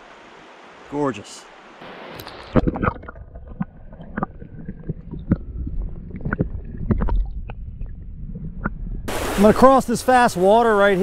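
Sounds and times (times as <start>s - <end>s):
underwater clicks and knocks: 2.2s - 9.1s
muffled underwater river rumble: 2.5s - 9.4s.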